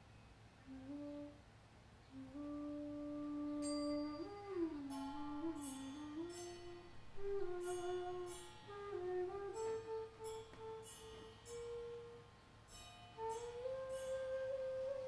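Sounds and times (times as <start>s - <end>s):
ensemble playing long held notes: 2.1s - 12.3s
soft metallic strikes ringing: 3.6s - 14.5s.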